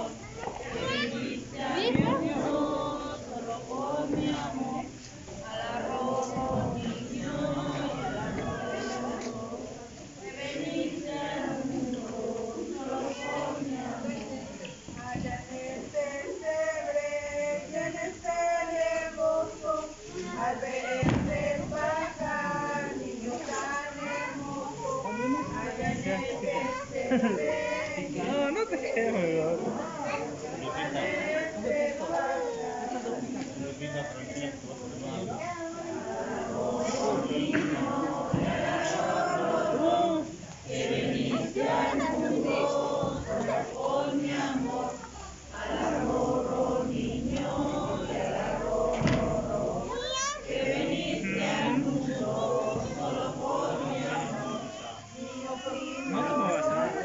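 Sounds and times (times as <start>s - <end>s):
group singing a lullaby: 0.0s - 57.0s
thump: 1.9s - 2.3s, 6.3s - 7.0s, 14.9s - 15.4s, 20.8s - 22.2s, 37.6s - 38.9s, 48.9s - 49.5s.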